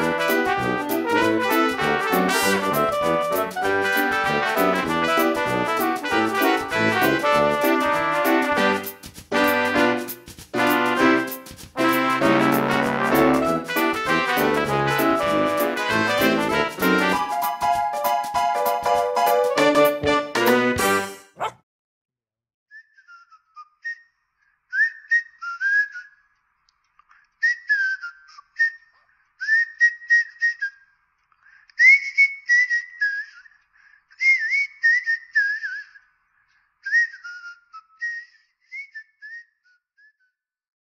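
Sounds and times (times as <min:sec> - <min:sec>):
person whistling a tune: 0:24.7 - 0:26.2, 0:27.4 - 0:30.8, 0:31.8 - 0:36.0, 0:36.8 - 0:40.4.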